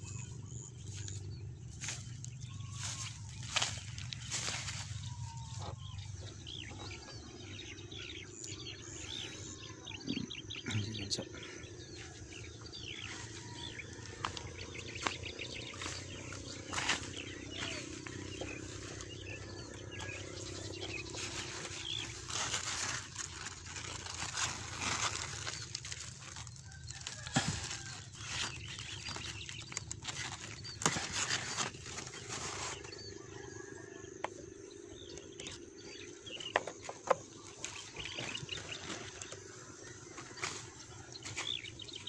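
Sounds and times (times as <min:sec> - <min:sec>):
hand handling plants: 0:00.4 - 0:07.1, 0:12.9 - 0:33.3, 0:35.1 - 0:41.8
leaves rustling: 0:00.8 - 0:05.6, 0:13.1 - 0:33.0.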